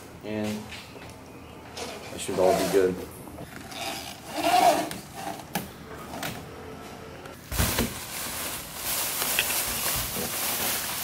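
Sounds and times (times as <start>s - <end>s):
plastic bag crinkling: 7.4s - 11.0s.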